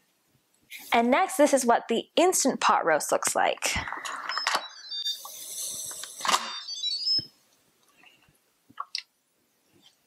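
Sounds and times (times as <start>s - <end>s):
electronic chime: 4.0s - 5.7s, 6.4s - 7.3s.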